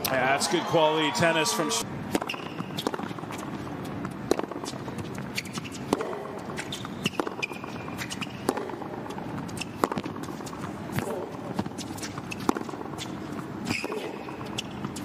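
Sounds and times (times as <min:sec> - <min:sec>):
racket striking tennis ball: 0:02.1 - 0:15.0
tennis ball bouncing: 0:02.1 - 0:15.0
shoe squeaks: 0:02.2 - 0:04.0, 0:04.6 - 0:08.6, 0:09.5 - 0:10.6, 0:11.7 - 0:15.0.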